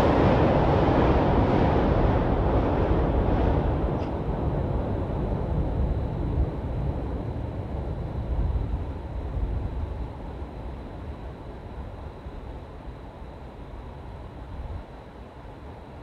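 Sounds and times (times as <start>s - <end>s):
train rumbling across bridge: 0.0s - 10.0s.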